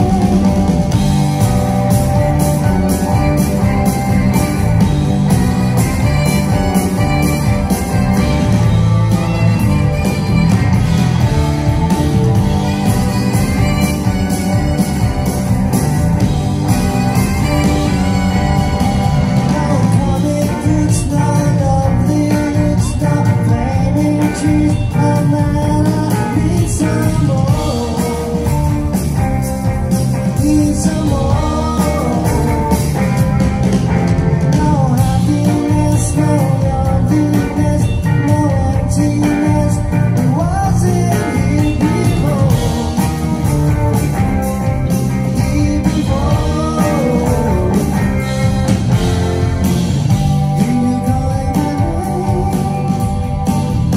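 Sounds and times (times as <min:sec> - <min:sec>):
bass: 0:00.0 - 0:53.9
drums: 0:00.0 - 0:53.9
electric guitars: 0:00.0 - 0:53.9
keyboards: 0:00.0 - 0:53.9
lead vocals singing: 0:45.3 - 0:48.3.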